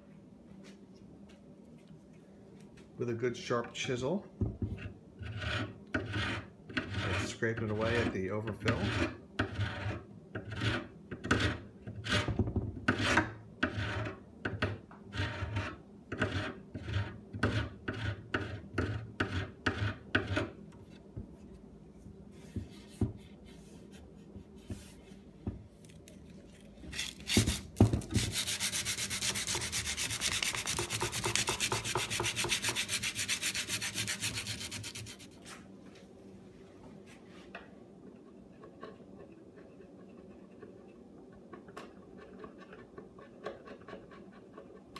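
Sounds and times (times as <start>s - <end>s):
scratchy rubbing: 5.2s - 8.1s, 26.9s - 35.6s
chisel scraping putty off wood: 26.9s - 35.2s.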